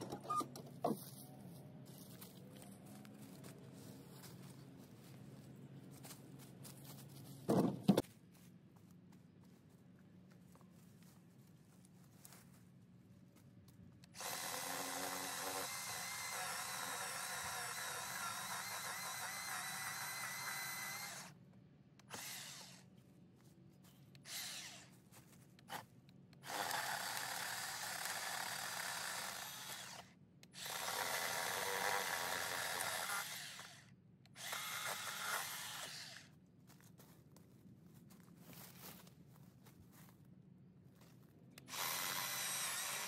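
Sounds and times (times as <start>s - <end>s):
electric saw cutting a log: 14.2s - 21.3s, 22.1s - 22.8s, 24.3s - 24.9s, 26.4s - 36.3s, 41.7s - 43.0s.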